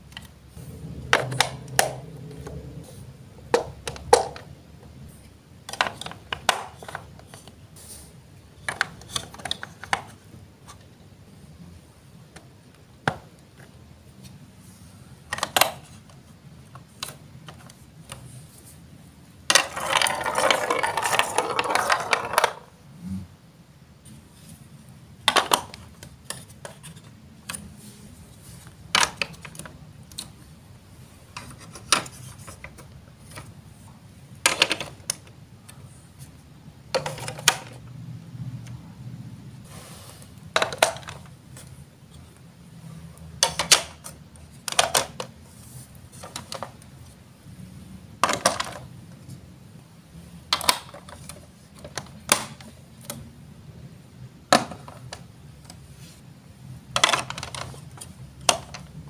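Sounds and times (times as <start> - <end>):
plastic blocks clicking into place: 1.1 - 2.6, 3.5 - 4.5, 5.7 - 7.6, 8.6 - 10.8, 15.3 - 18.2, 19.5 - 22.7, 25.2 - 27.6, 28.9 - 30.4, 34.4 - 35.3, 36.9 - 37.8, 40.5 - 41.3, 43.4 - 45.3, 48.2 - 48.9, 50.5 - 53.3, 54.5 - 55.8, 56.9 - 59.0
marble rolling on plastic track: 19.5 - 22.8.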